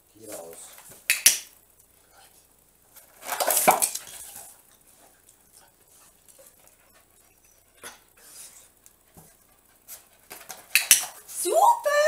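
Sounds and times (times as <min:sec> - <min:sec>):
dog panting: 0:05.0 - 0:10.4.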